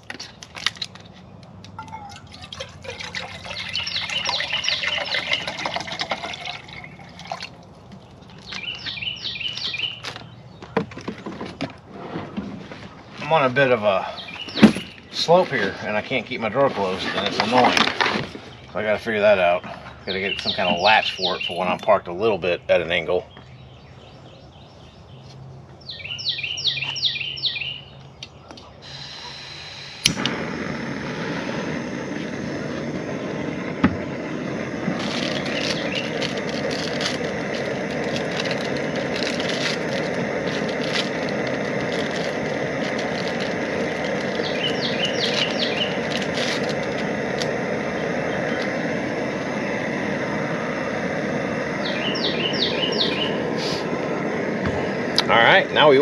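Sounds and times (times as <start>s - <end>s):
bird chirping: 1.2s - 11.6s, 13.0s - 17.7s, 18.4s - 30.7s, 34.9s - 50.0s, 50.7s - 56.0s
gas stove hissing: 3.0s - 7.2s, 28.8s - 56.0s.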